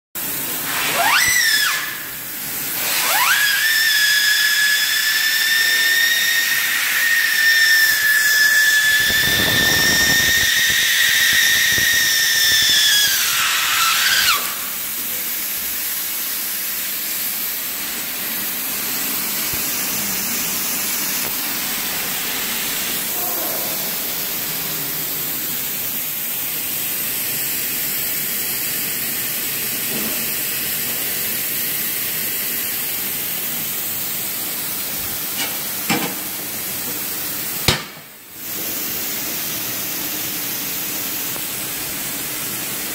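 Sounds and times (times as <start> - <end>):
hot air hissing: 0.2 - 42.9
high-pitched whistle: 0.9 - 2.1, 3.0 - 14.8.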